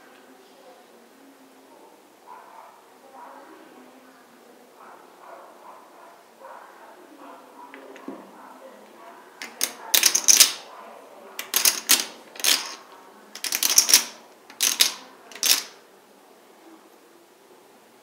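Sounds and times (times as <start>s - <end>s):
poker chips clacking: 9.4s - 10.6s, 11.4s - 12.8s, 13.4s - 15.8s.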